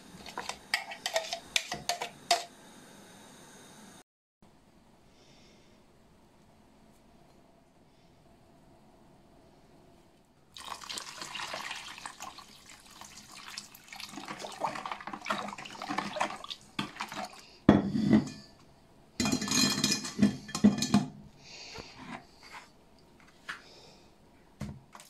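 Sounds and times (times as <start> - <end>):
spoon stirring: 0.2 - 2.4
water pouring into plastic bowl: 10.5 - 17.4
metal sieve clattering on glass: 19.2 - 21.1.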